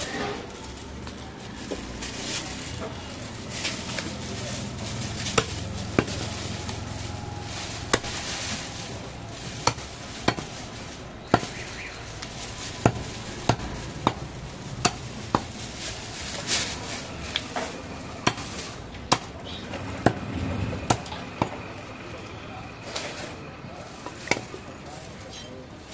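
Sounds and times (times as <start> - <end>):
steady background noise: 0.0 - 25.9
cleaver chopping meat on wood: 5.4 - 6.2, 9.6 - 10.5, 11.3 - 11.6, 12.8 - 15.5, 18.2 - 19.4, 20.0 - 20.3, 20.9 - 21.6.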